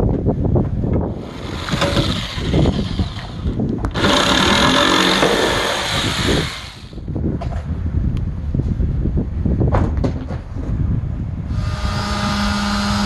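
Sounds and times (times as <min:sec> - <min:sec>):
jigsaw cutting plywood: 0:01.2 - 0:07.0, 0:11.6 - 0:13.0.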